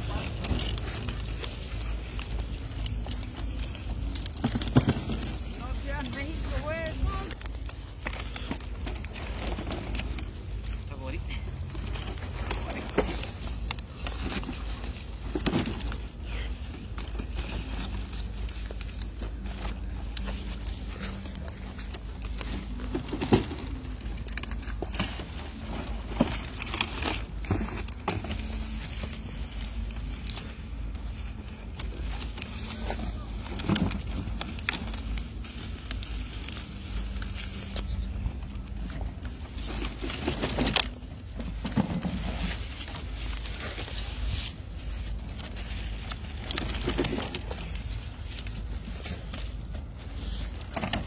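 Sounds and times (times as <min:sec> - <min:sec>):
plants rustling: 0:00.0 - 0:51.0
steady low rumble: 0:00.0 - 0:51.0.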